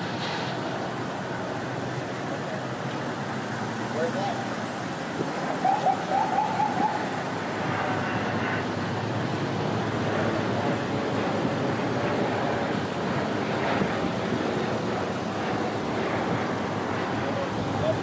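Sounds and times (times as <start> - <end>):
street traffic roar: 0.0 - 18.0
wind on microphone: 4.8 - 18.0.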